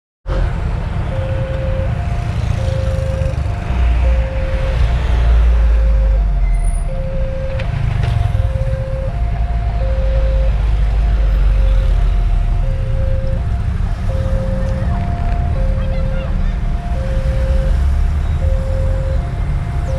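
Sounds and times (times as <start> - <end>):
vehicle engines rumbling: 0.2 - 19.9
level crossing alarm two-note tone: 1.1 - 19.9.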